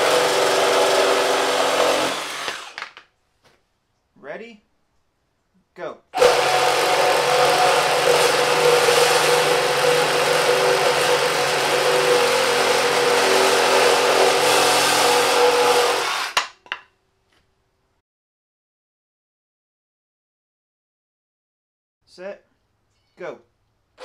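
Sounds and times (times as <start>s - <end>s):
reciprocating saw cutting wood: 0.0s - 2.8s, 6.2s - 16.4s.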